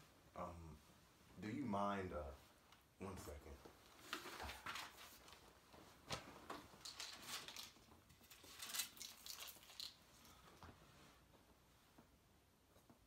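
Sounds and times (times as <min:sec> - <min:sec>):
paper rustling: 0:04.0 - 0:05.5, 0:06.1 - 0:10.4.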